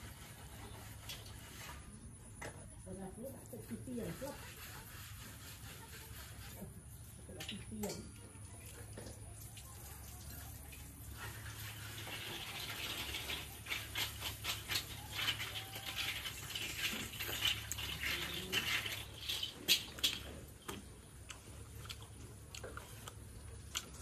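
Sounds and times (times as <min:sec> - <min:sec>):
fried chicken crust crunching: 0:11.7 - 0:24.0.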